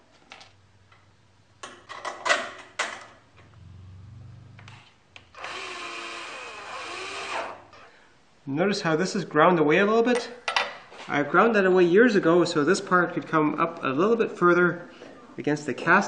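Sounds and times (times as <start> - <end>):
cordless drill drilling into steel: 5.4 - 7.6.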